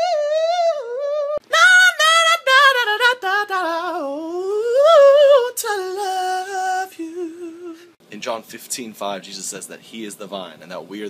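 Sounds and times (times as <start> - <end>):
man singing unaccompanied: 0.0 - 8.0.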